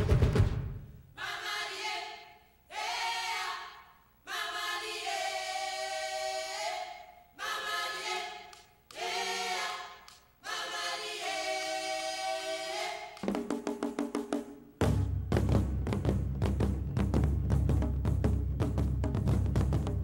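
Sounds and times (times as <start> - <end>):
women's choir singing a cappella: 1.2 - 13.2.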